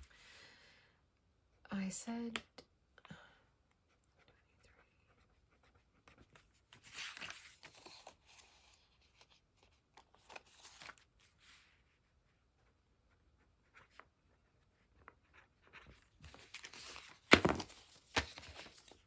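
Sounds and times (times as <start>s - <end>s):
paper banknotes rustling: 6.7s - 9.4s, 10.0s - 11.3s, 15.0s - 19.0s.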